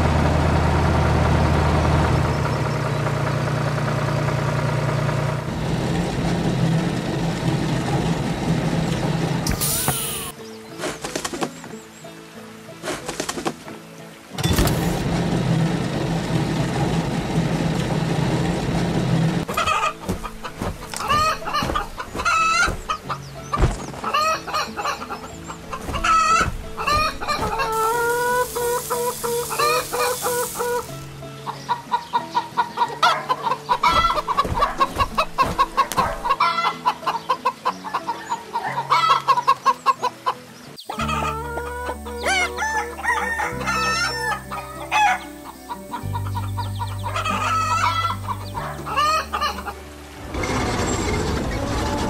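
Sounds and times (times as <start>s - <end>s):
light background music: 6.8s - 52.0s
cartoon hens clucking: 24.0s - 30.9s, 40.9s - 42.9s
hissing: 25.8s - 31.2s
rooster crowing: 41.0s - 45.2s.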